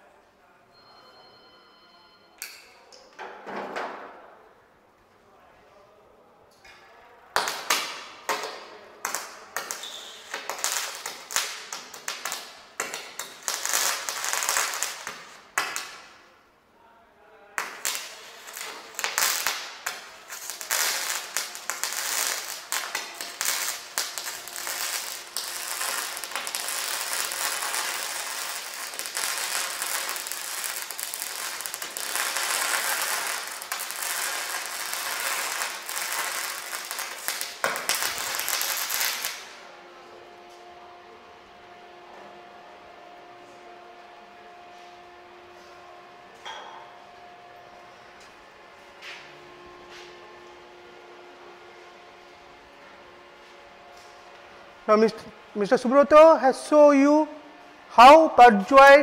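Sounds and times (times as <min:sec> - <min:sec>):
welding arc crackling: 0:07.4 - 0:16.2, 0:17.6 - 0:39.6.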